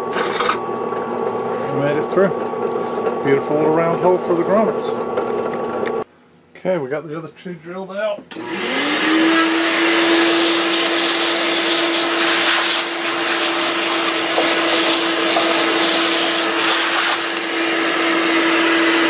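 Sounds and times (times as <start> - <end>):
vacuum cleaner motor hum: 8.3 - 19.0
vacuum nozzle sucking shavings: 8.3 - 19.0.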